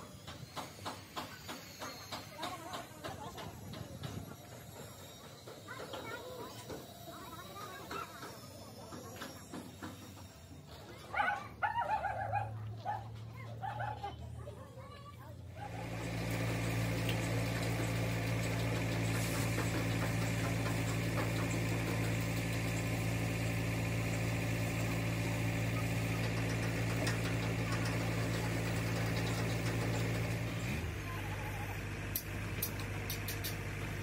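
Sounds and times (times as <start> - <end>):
engine running: 15.2 - 34.0.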